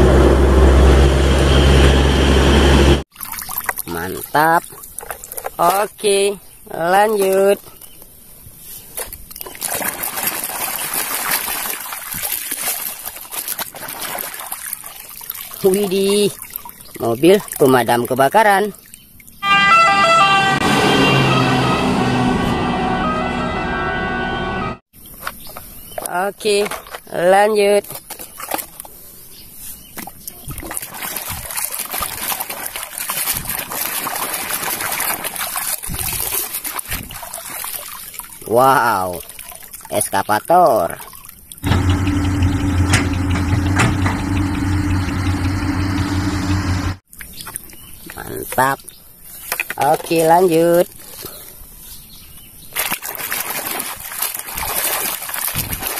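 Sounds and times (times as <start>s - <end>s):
toy splashing in water: 3.1s - 5.8s, 9.3s - 17.8s, 30.1s - 40.2s, 52.8s - 55.9s.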